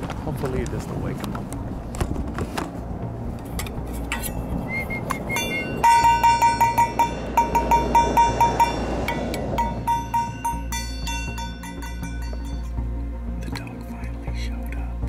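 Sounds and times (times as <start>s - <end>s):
metal bowls clanging together: 3.5s - 12.7s.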